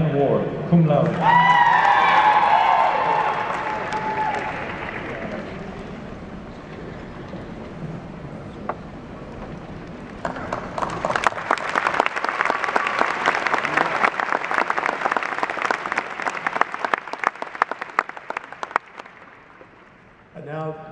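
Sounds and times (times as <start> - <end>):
audience applauding: 1.2 - 6.0, 10.2 - 19.8.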